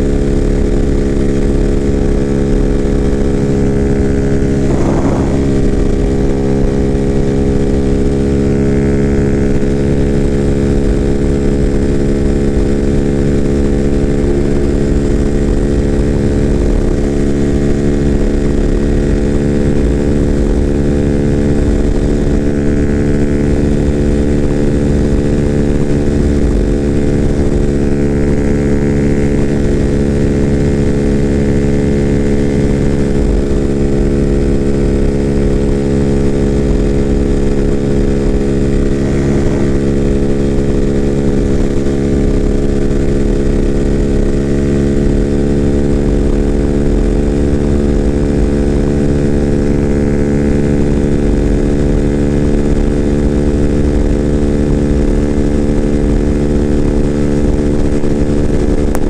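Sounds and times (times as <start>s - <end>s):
motorcycle engine running at high speed: 0.0s - 59.0s
wind buffeting microphone: 2.3s - 8.6s.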